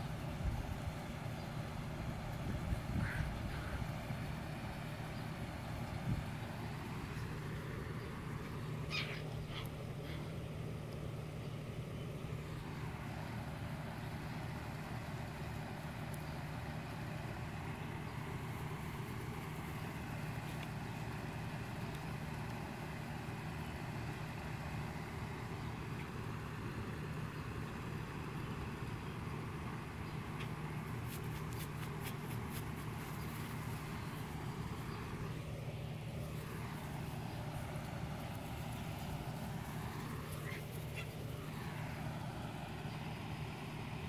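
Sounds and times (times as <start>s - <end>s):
steady low rumble: 0.0s - 44.0s
faint clicks: 18.9s - 22.8s.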